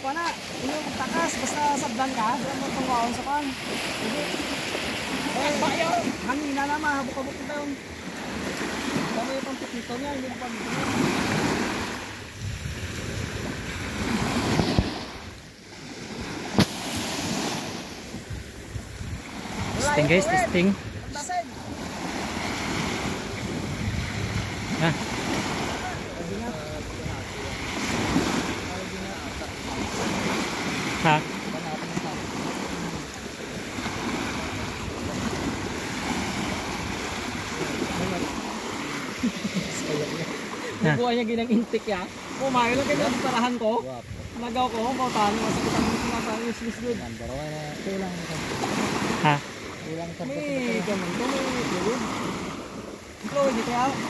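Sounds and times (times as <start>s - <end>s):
small waves washing onto shore: 0.0s - 54.0s
wind on microphone: 10.8s - 30.8s.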